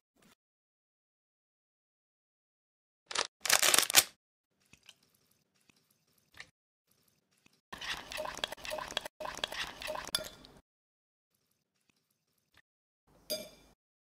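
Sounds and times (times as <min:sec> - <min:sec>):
plastic sachet crinkling and tearing: 0:03.1 - 0:04.2
metal spoon stirring thick sauce: 0:07.4 - 0:10.1.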